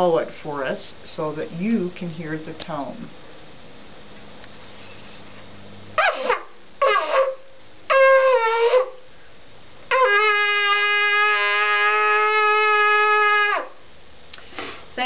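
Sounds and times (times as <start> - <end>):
shofar blasts: 6.0 - 9.0, 9.9 - 13.8.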